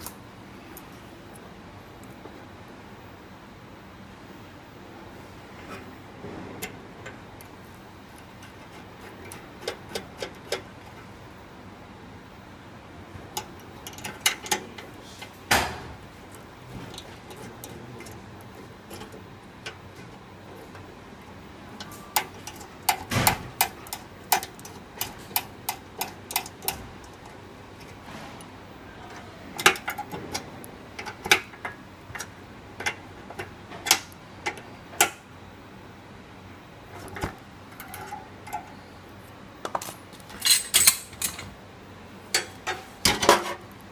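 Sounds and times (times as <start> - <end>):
metal fittings clicking: 21.8 - 27.3.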